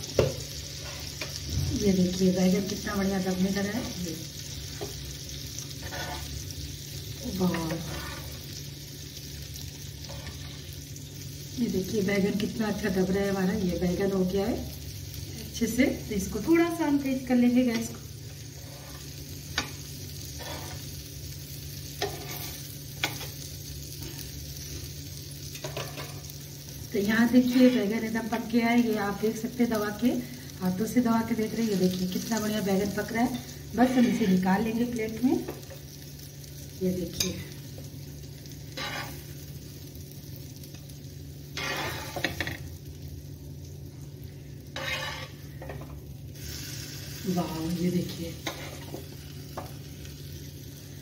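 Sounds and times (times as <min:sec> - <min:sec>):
vegetable slices sizzling in oil: 0:00.0 - 0:51.0.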